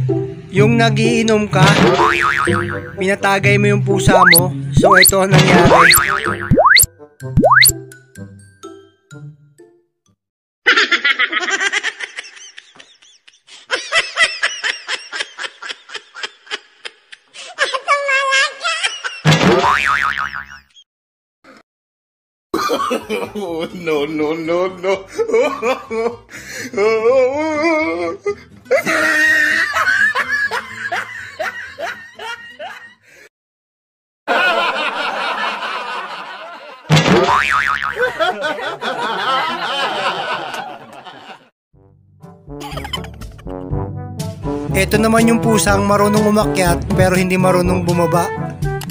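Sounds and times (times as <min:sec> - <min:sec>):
high-pitched laughter: 0:10.7 - 0:19.2, 0:27.4 - 0:32.9, 0:42.6 - 0:43.5.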